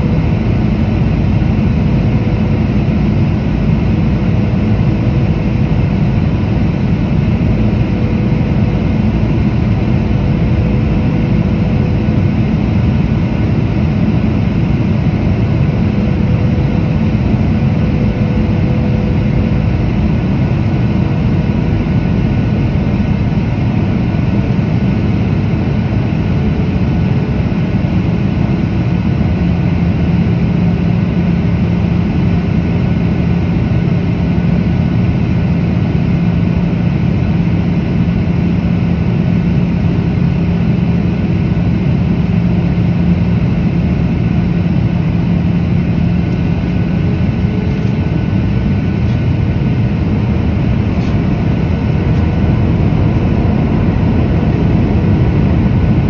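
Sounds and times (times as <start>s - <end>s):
faint engine whine: 0.0s - 56.0s
jet engine drone: 0.0s - 56.0s
rushing airflow: 44.4s - 56.0s.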